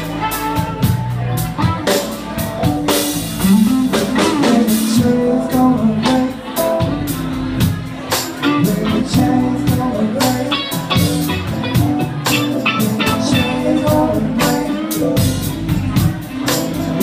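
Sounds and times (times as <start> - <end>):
bass guitar: 0.0 - 17.0
drum kit: 0.0 - 17.0
electric guitar: 0.0 - 17.0.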